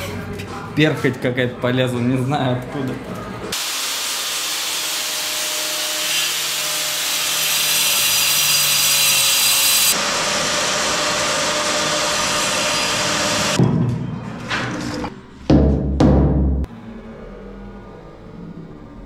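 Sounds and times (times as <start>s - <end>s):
power tool grinding concrete: 6.1s - 10.1s.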